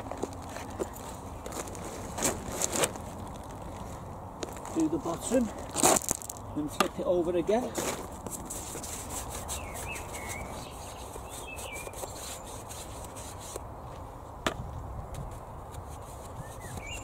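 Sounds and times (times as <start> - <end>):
paintbrush scrubbing on wood: 8.3 - 13.6
bird chirps: 9.5 - 12.0, 16.4 - 17.0.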